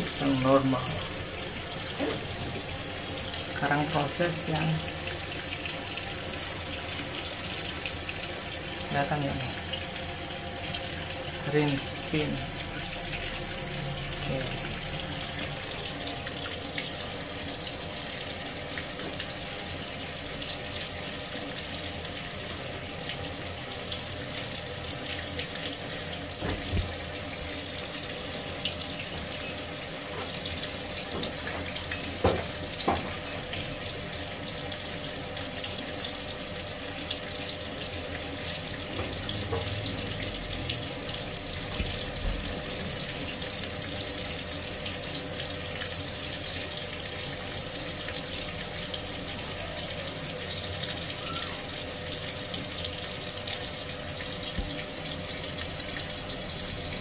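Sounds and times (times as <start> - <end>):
water pouring into washing machine: 0.0 - 57.0.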